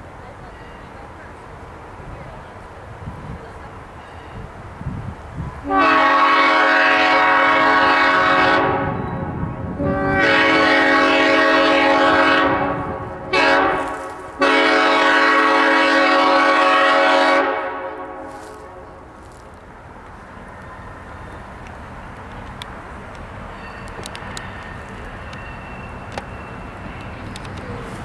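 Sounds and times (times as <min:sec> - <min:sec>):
locomotive air horn blasts: 0:05.6 - 0:19.0.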